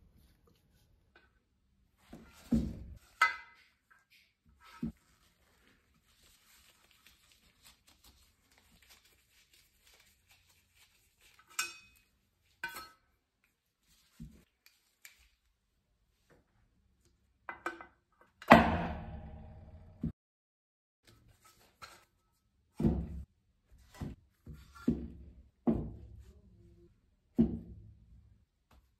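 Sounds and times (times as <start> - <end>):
loud metallic clang: 18.5 - 19.9.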